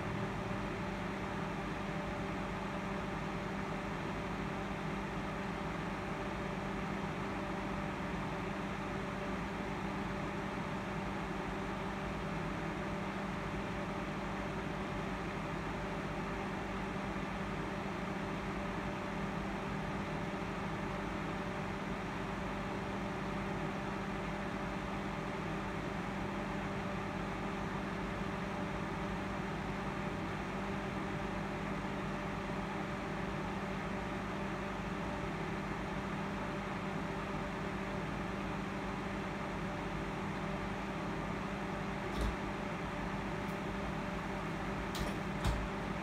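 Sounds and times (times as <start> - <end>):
electric desk fan whirring: 0.0 - 46.0
desk fan whirring: 23.9 - 46.0
constant low hum: 32.7 - 46.0.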